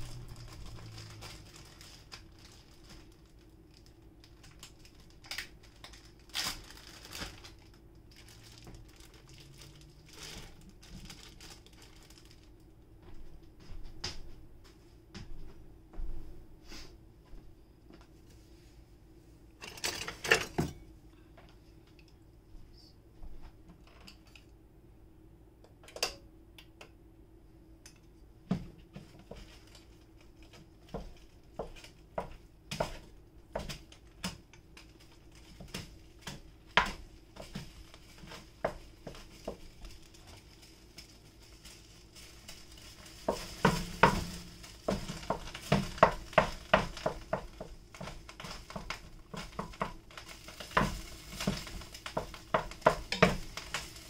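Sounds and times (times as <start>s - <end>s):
meat sizzling: 35.1s - 54.0s
spoon knocking and scraping pot: 50.6s - 53.9s.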